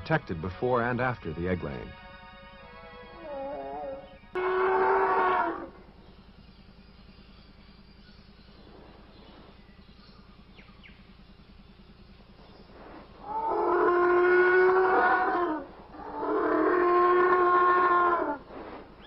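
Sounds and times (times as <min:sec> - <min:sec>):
faint low hum: 0:00.0 - 0:19.0
dinosaur calls: 0:03.2 - 0:05.8, 0:13.2 - 0:18.4.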